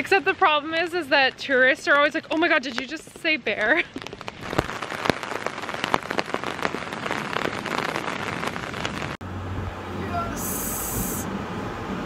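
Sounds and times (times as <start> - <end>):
raindrop hits: 1.7 - 9.2
rain falling on creek: 1.9 - 9.2.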